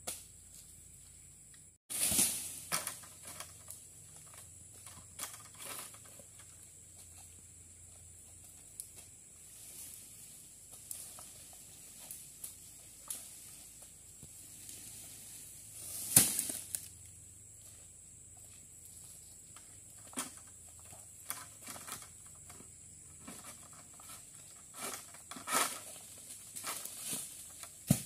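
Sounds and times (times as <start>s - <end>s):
palm material crashing to ground: 1.9s - 3.4s, 16.0s - 16.8s, 26.6s - 28.0s.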